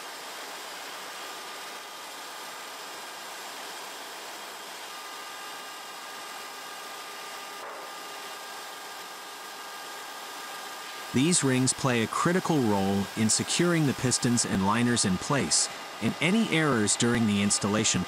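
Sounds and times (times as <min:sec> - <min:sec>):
engine room hiss: 0:10.8 - 0:18.0
faint high steady tones: 0:11.1 - 0:18.0.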